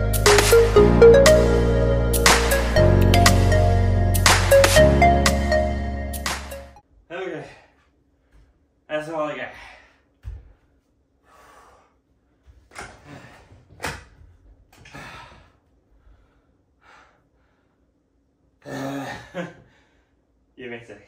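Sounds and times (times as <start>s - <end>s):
man gasping for breath: 14.8s - 17.6s.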